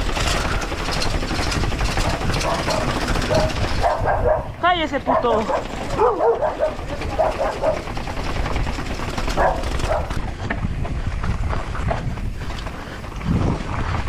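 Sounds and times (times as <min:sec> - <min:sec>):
wind rumble on microphone: 0:00.0 - 0:14.0
dog barking: 0:02.0 - 0:08.0, 0:09.4 - 0:10.2.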